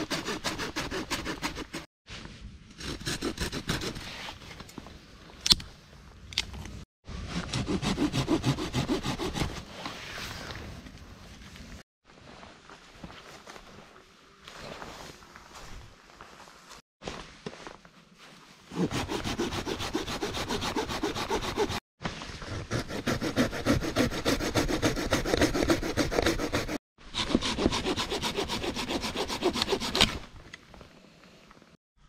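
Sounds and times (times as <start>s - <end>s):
hand saw cutting a log: 0.0s - 1.9s, 2.8s - 4.1s, 7.4s - 9.7s, 18.7s - 21.8s, 22.5s - 30.2s.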